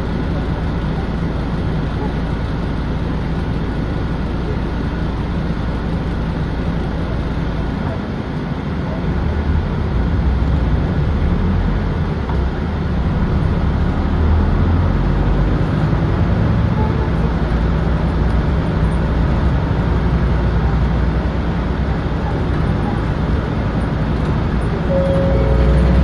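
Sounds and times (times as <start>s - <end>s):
bus diesel engine pulling away: 8.9s - 26.0s.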